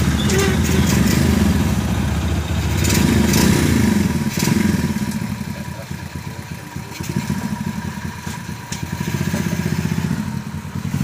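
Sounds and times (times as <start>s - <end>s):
small motorbike engine idling: 4.0s - 11.0s.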